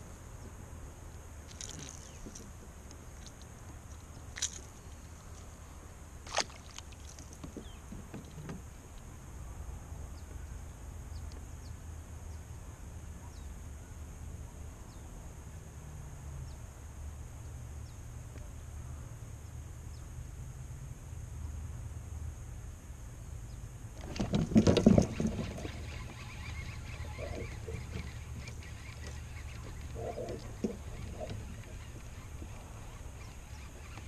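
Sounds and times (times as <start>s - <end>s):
kayak moving on water: 1.5s - 8.9s, 24.0s - 34.0s.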